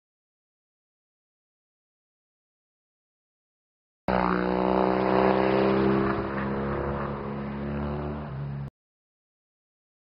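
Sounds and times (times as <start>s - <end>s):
motorcycle engine running: 4.1s - 8.7s.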